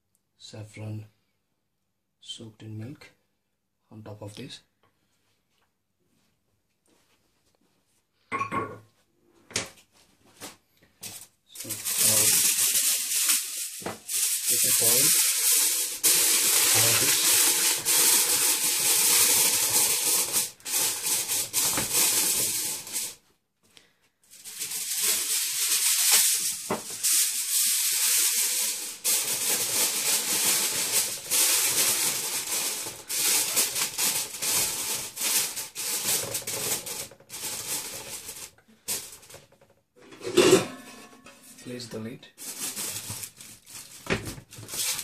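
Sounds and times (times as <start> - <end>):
aluminium foil crinkling: 11.0 - 23.2, 24.3 - 39.4, 42.4 - 45.0.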